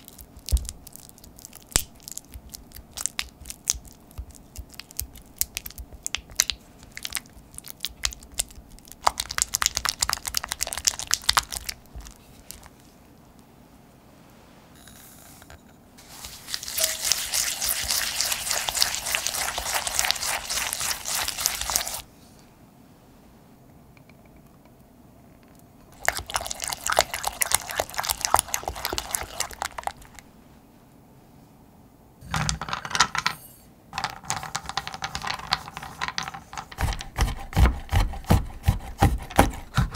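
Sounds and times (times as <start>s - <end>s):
spatula squelching in bowl: 16.0s - 22.0s, 26.0s - 30.2s.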